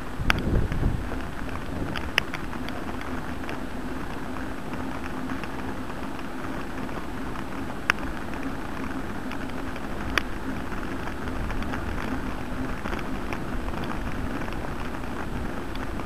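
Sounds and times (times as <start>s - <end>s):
bicycle tyres rolling on asphalt: 0.0s - 16.0s
faint ticks: 0.0s - 16.0s
wind on microphone: 0.0s - 16.0s.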